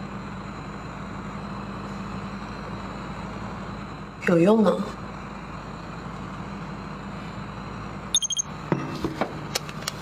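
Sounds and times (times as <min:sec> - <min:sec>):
low steady hum: 0:00.0 - 0:08.7
phone alert beeps: 0:08.2 - 0:08.5.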